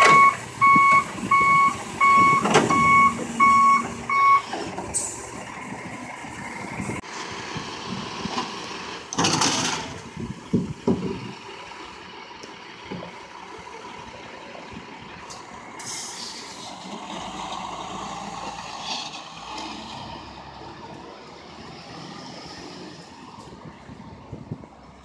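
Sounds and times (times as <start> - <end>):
truck engine pulling away: 0.0 - 25.0
air brake hiss: 15.8 - 16.7.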